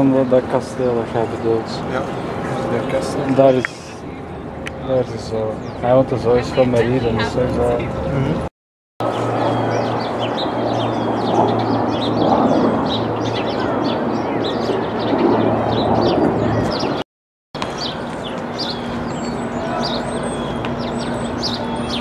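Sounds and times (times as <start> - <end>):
outdoor background hum: 0.0 - 17.0, 17.6 - 22.0
small birds chirping: 9.0 - 17.0, 17.6 - 22.0.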